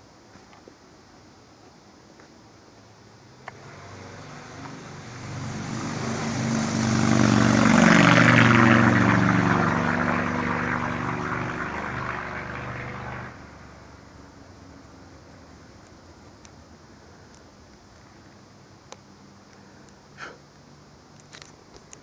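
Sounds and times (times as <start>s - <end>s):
passing vehicle engine: 3.3s - 15.8s.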